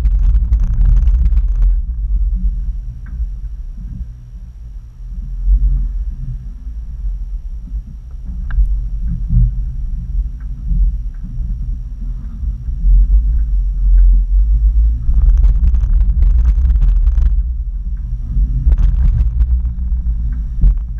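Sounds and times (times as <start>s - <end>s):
vehicle rattling: 0.0s - 3.7s, 14.2s - 20.9s
vehicle engine rumble: 0.0s - 20.9s.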